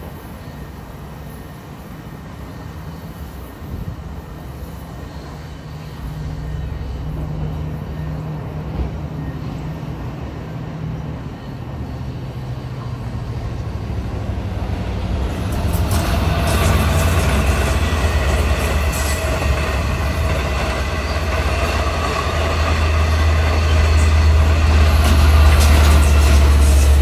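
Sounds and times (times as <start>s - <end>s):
diesel locomotive engine droning: 0.0s - 27.0s
train wheels clattering on rails: 14.2s - 27.0s.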